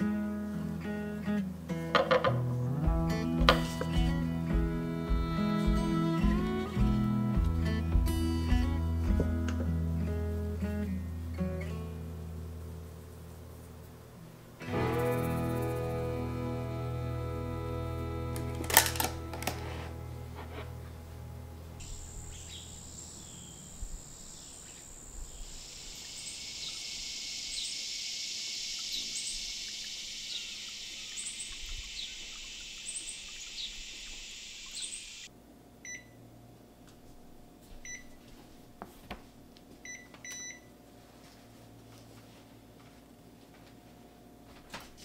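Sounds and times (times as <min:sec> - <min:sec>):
kitchen hum: 0:13.7 - 0:26.6
high-pitched insect drone: 0:14.6 - 0:20.0, 0:21.8 - 0:35.3
birds chirping: 0:14.6 - 0:35.3
oven control panel beeps: 0:35.8 - 0:36.2, 0:37.8 - 0:38.2, 0:39.8 - 0:40.7.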